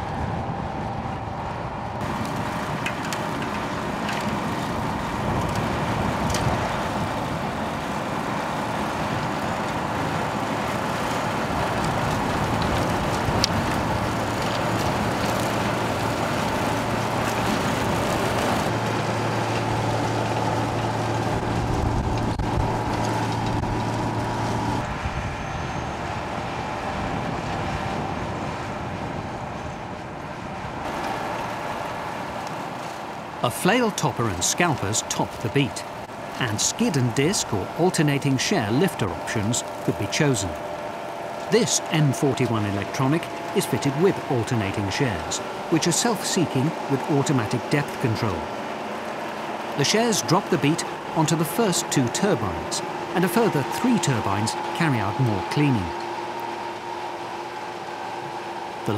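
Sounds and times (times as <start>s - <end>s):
harvester engine and machinery running: 0.0s - 58.9s
tractor driving: 0.0s - 58.9s
steady low drone: 33.3s - 58.9s.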